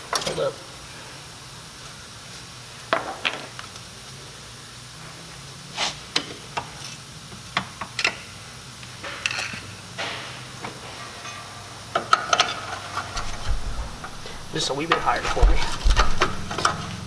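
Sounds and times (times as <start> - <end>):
faint low hum: 13.2 - 17.0
hand tools clinking on metal: 13.2 - 17.0.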